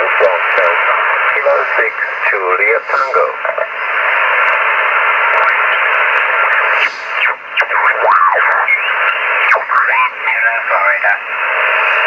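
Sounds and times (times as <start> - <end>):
garbled mistuned radio voice: 0.0 - 3.8, 7.2 - 11.3
radio band hiss: 0.0 - 12.0.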